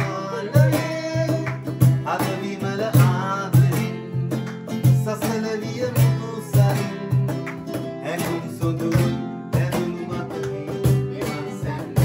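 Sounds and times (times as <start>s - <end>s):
people singing along: 0.0s - 4.1s, 9.8s - 12.0s
acoustic guitar strumming: 0.0s - 12.0s.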